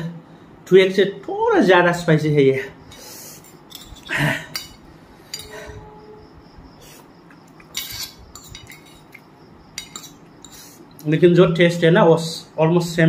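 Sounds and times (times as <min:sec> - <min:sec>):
forks clinking on ceramic plate: 0:02.9 - 0:05.6, 0:07.7 - 0:09.2, 0:09.8 - 0:10.7
cutlery clatter: 0:03.4 - 0:05.6, 0:07.6 - 0:09.2, 0:09.8 - 0:10.7.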